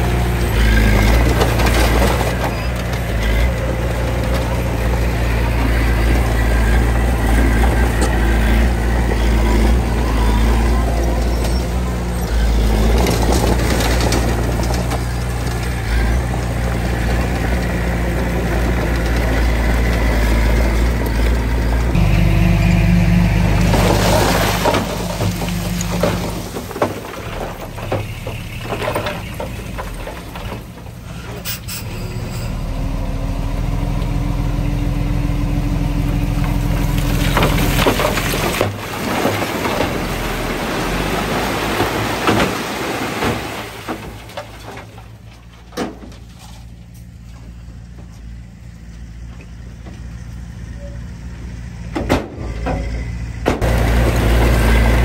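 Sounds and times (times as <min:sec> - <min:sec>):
diesel engine running: 0:00.0 - 0:55.0
clanks and knocks: 0:23.7 - 0:31.0, 0:43.2 - 0:46.5, 0:51.9 - 0:53.7.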